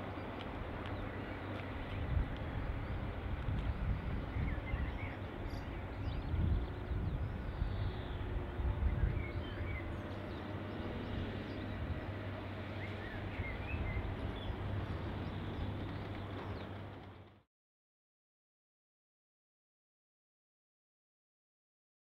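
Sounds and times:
distant diesel locomotive rumble: 0:00.0 - 0:17.4.

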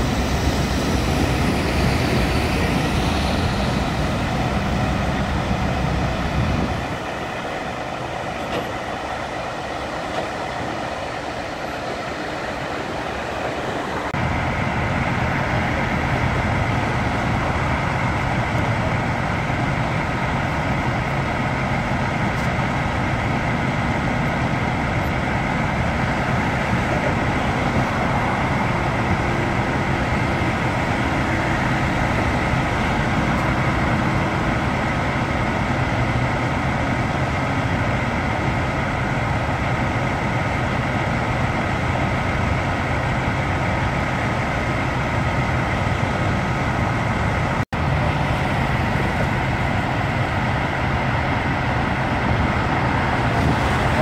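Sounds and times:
faint engine whine: 0:00.0 - 0:12.0
truck engine rumbling: 0:00.0 - 0:54.0.

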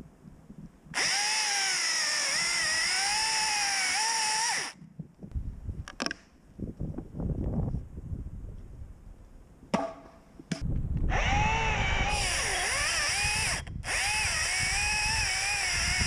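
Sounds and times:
electric chainsaw cutting wood: 0:01.0 - 0:04.8, 0:11.1 - 0:16.0.

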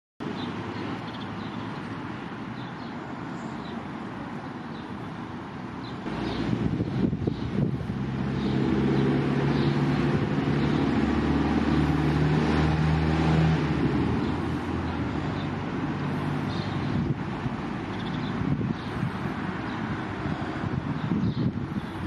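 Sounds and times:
motor engine humming: 0:06.0 - 0:18.0.

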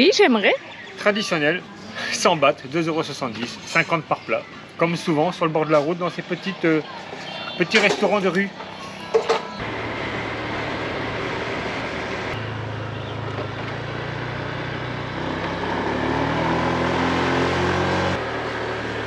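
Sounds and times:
road noise: 0:00.0 - 0:19.0
vehicle engine running: 0:09.4 - 0:19.0.

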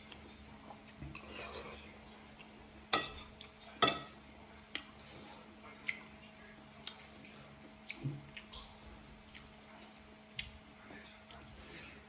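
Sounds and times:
cutlery clinking on ceramic plate: 0:03.0 - 0:04.2
wet eating sounds: 0:04.4 - 0:12.0.

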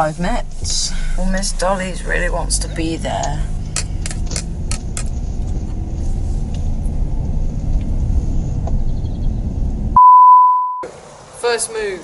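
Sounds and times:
car cabin road rumble: 0:00.0 - 0:10.0
steady bleep tone: 0:10.0 - 0:10.9.

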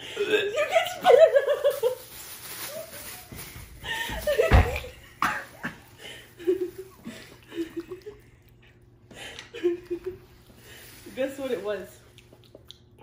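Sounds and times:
plastic bag crinkling: 0:01.1 - 0:07.1.

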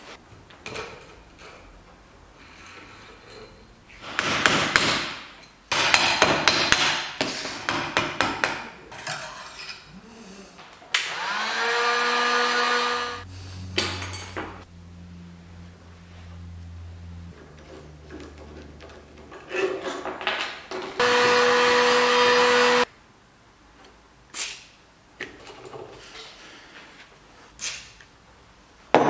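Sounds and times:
low steady hum: 0:13.3 - 0:19.3.

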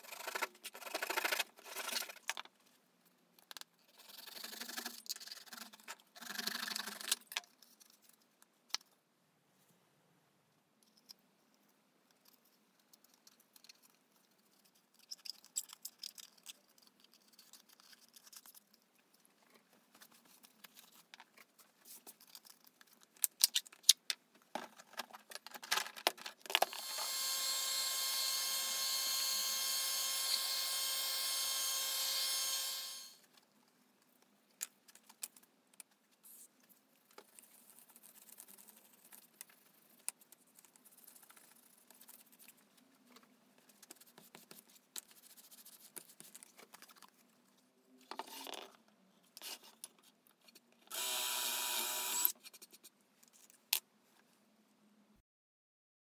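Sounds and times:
power tool whining: 0:26.7 - 0:33.2, 0:50.9 - 0:52.3.

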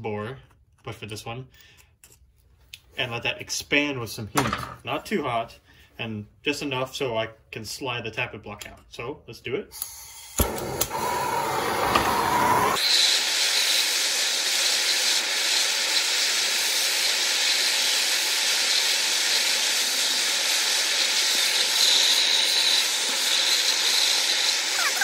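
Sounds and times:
gas torch hissing: 0:09.7 - 0:25.0.

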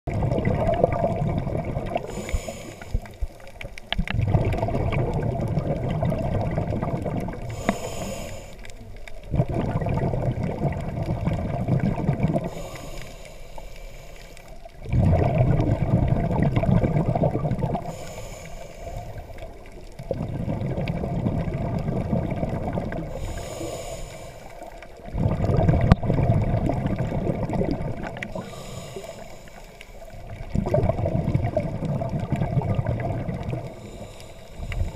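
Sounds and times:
exhaust bubbles rushing: 0:00.1 - 0:02.1, 0:04.1 - 0:07.5, 0:09.3 - 0:12.5, 0:14.8 - 0:17.9, 0:20.0 - 0:23.1, 0:25.1 - 0:28.3, 0:30.3 - 0:33.7
regulator inhale hiss: 0:02.0 - 0:03.4, 0:07.4 - 0:08.9, 0:12.4 - 0:14.7, 0:17.7 - 0:19.6, 0:23.0 - 0:25.0, 0:28.2 - 0:30.3, 0:33.6 - 0:34.9.

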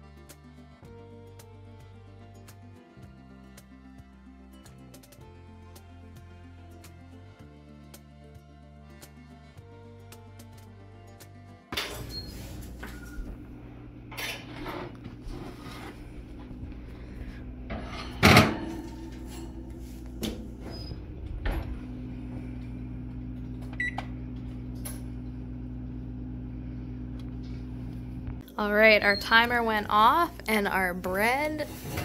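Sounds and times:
steady appliance hum: 0:11.8 - 0:32.0.

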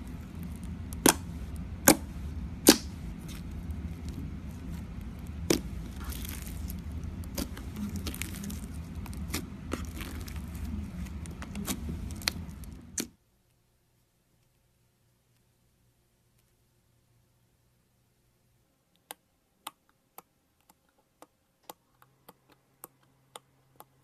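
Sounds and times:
slime clicks and crackles: 0:00.4 - 0:02.0, 0:02.6 - 0:13.1
slime sharp pops: 0:01.0 - 0:03.4.

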